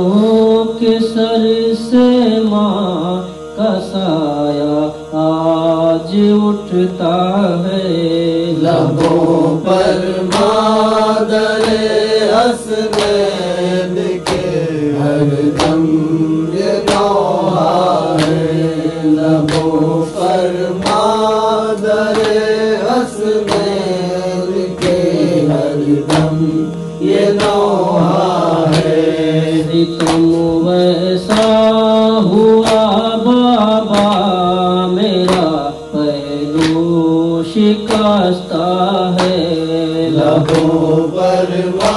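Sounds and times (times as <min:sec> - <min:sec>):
man chanting a lament: 0:00.0 - 0:41.9
steady drone: 0:00.0 - 0:41.9
regular percussive beat: 0:08.6 - 0:38.3, 0:39.0 - 0:41.9.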